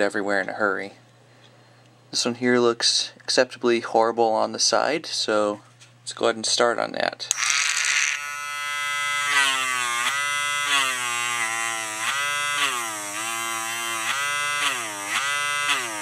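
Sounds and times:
rotary tool whining: 0:07.3 - 0:16.0.

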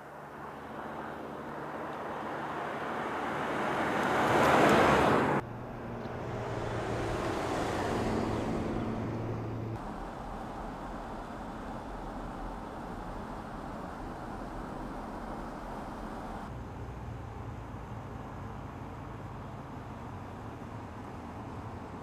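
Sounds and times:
car passing with tyre rush: 0:00.0 - 0:16.5.

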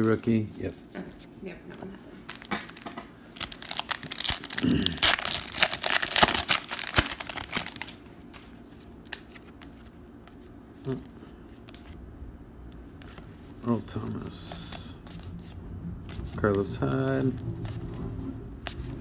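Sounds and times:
foil wrapper tearing and crinkling: 0:03.4 - 0:08.4.

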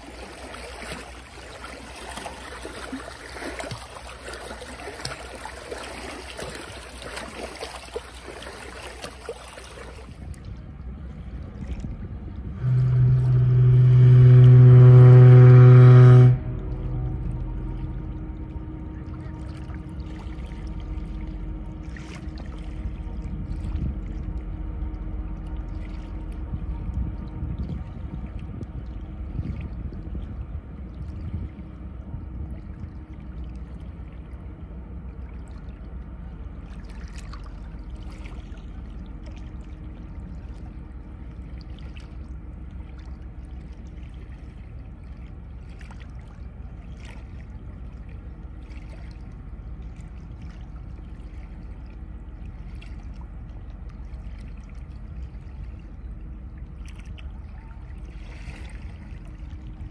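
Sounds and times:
small waves lapping: 0:00.0 - 0:59.9
steady low rumble: 0:00.0 - 0:59.9.

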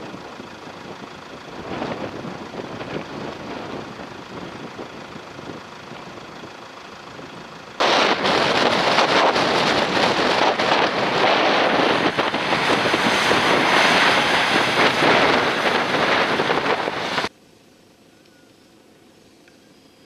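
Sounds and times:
wind buffeting microphone: 0:00.0 - 0:17.3
off-road vehicle engine under load: 0:00.0 - 0:17.4.

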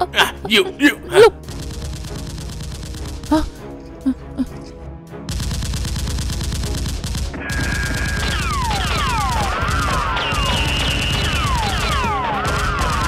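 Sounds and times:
rapid automatic gunfire: 0:01.4 - 0:03.6, 0:05.3 - 0:13.0.

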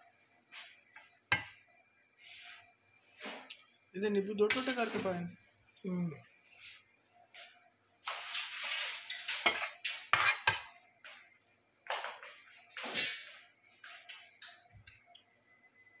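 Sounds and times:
metal spoon scraping platter: 0:08.1 - 0:10.7.

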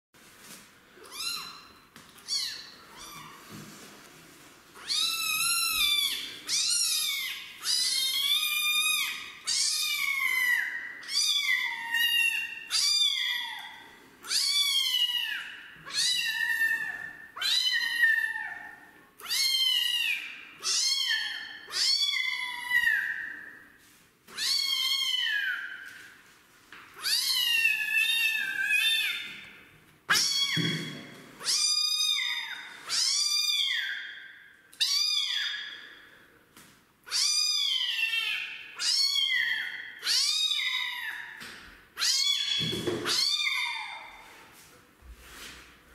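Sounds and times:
kitten meowing: 0:01.1 - 0:03.4, 0:04.8 - 0:13.7, 0:30.1 - 0:34.0, 0:37.1 - 0:41.3.

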